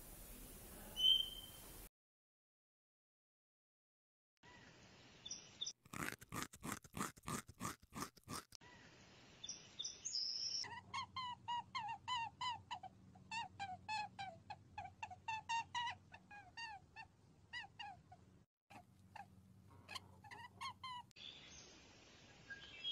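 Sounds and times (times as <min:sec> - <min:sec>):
small animal squeaking: 0:10.5 - 0:21.1.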